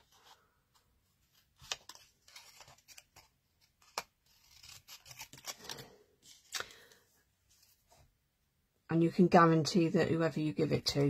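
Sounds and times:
paper rustling: 0.0s - 8.0s.

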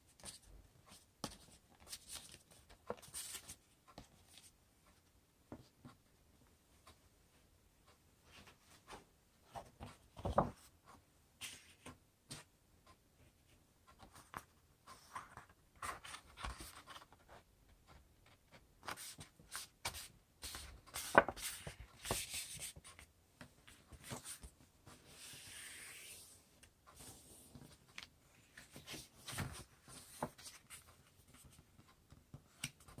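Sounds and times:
paper rustling and crinkling: 9.5s - 10.7s, 18.9s - 23.0s, 27.4s - 31.9s.

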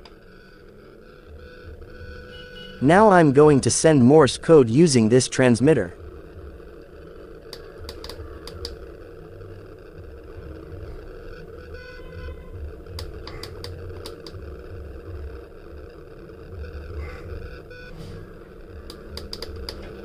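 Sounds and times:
steady low hum: 0.0s - 20.0s
push-button switch clicking: 18.9s - 19.8s.

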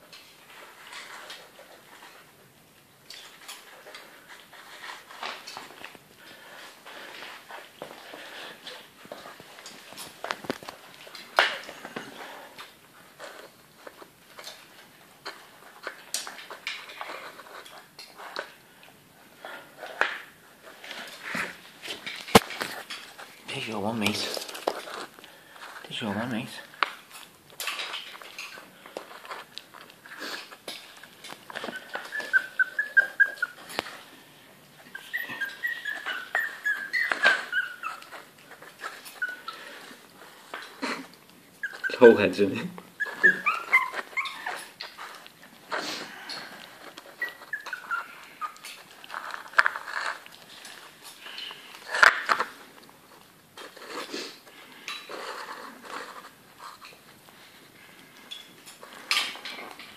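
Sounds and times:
puppies smacking and lapping: 0.0s - 59.9s
puppy whimpering: 31.4s - 34.1s, 34.8s - 52.2s.

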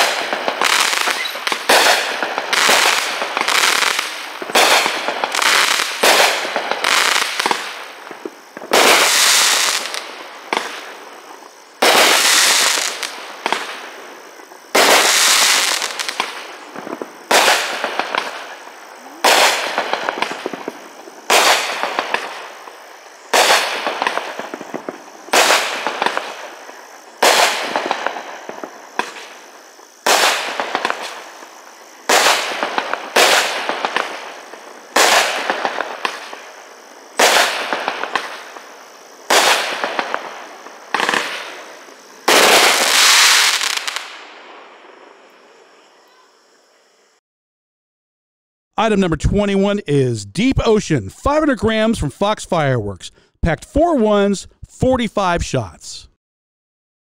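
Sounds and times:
fireworks pops: 0.0s - 10.9s, 11.8s - 13.8s, 19.2s - 22.4s, 23.3s - 26.4s, 27.2s - 29.4s
fireworks bangs: 0.0s - 45.0s
fireworks crackling: 0.0s - 45.1s.

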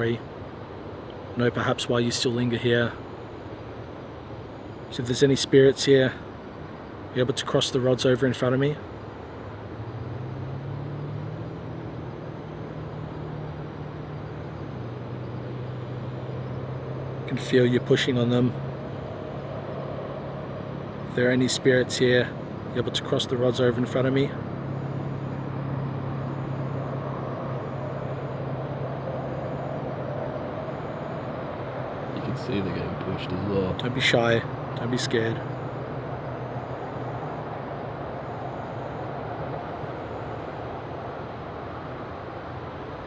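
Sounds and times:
distant engine hum: 0.0s - 43.0s
outdoor background rumble: 0.0s - 43.0s.

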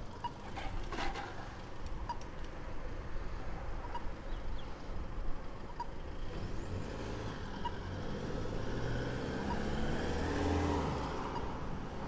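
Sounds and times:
vehicle driving past: 6.4s - 11.4s.

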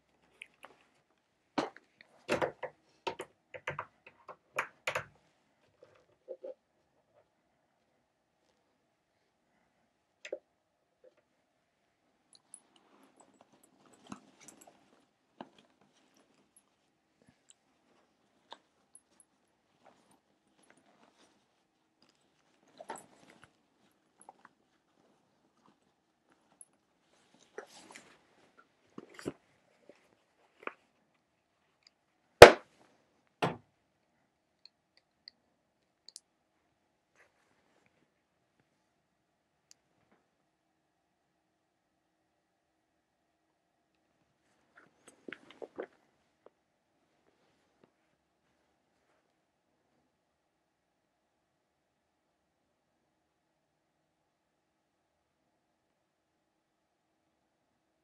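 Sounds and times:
soft rustling: 0.0s - 3.0s, 11.0s - 33.4s, 36.6s - 39.0s, 44.2s - 49.5s.

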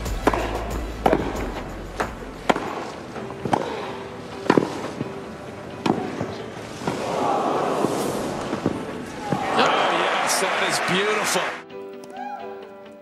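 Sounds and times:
racket hitting tennis ball: 0.0s - 5.1s, 5.8s - 7.1s
background music: 0.0s - 13.0s.

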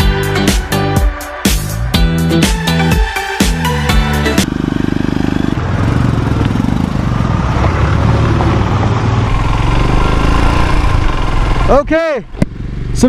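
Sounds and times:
motorcycle engine running: 4.1s - 13.0s.

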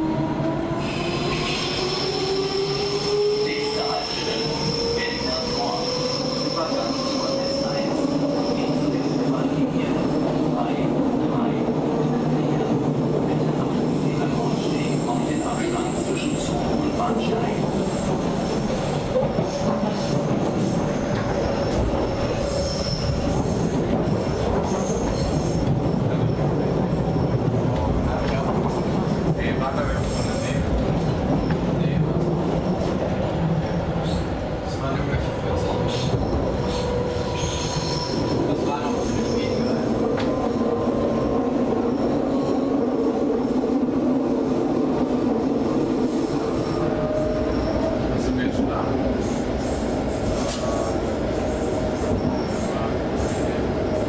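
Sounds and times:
train wheels rumbling on rail: 0.0s - 54.0s
high squeal: 0.9s - 9.1s.

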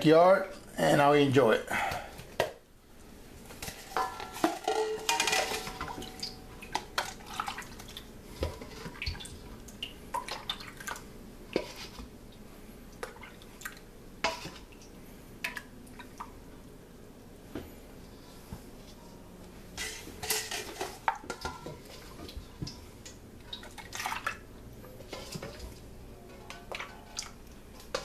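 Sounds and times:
liquid dripping and splashing: 8.7s - 11.1s.

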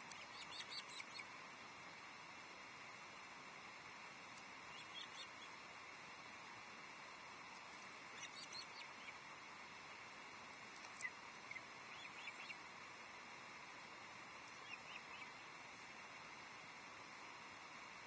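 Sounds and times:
faint outdoor hiss: 0.0s - 18.0s
faint high bird chirps: 0.1s - 1.3s, 4.7s - 5.6s, 8.1s - 9.2s, 10.9s - 12.6s, 14.5s - 15.4s.

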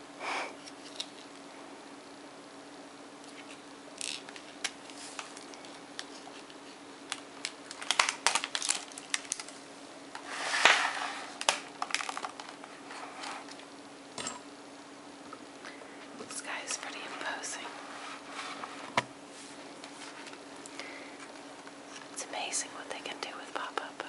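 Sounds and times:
faint steady hum: 0.0s - 24.0s
paper pages crinkling: 3.3s - 9.6s, 10.2s - 13.6s.

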